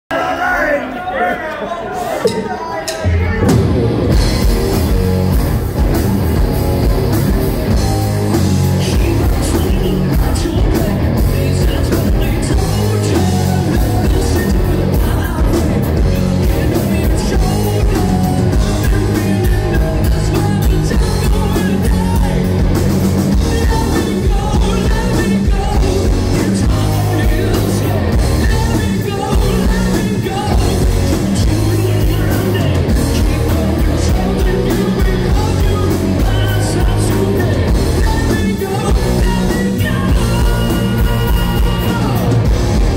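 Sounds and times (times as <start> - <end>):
drums: 2.0 - 42.9
electric guitars: 3.1 - 42.9
electric bass: 3.4 - 42.9
singer singing into a microphone: 7.8 - 42.9.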